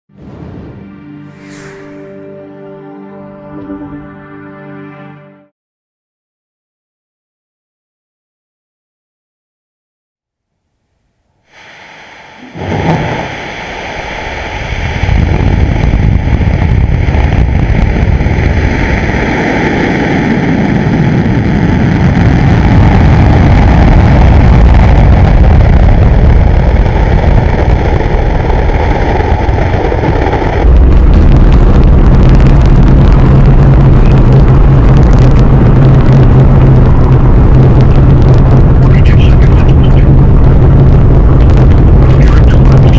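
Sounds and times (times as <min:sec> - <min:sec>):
steady low hum: 0:11.2 - 0:42.9
rocket engine roar with crackle: 0:11.5 - 0:42.9.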